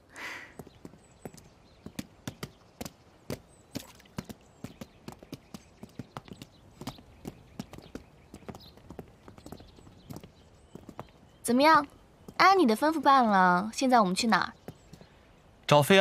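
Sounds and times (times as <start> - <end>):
horse hooves clip-clopping on pavement: 0.5 - 12.6, 14.6 - 15.1.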